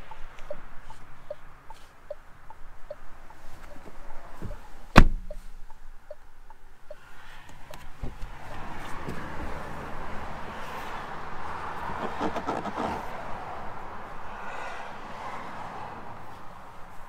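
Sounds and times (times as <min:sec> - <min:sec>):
car door thud: 0:04.4 - 0:05.4.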